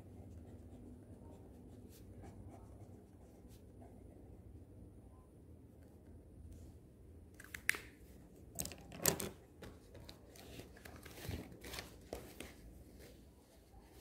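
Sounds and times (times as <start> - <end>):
paper rustling: 8.6 - 13.1.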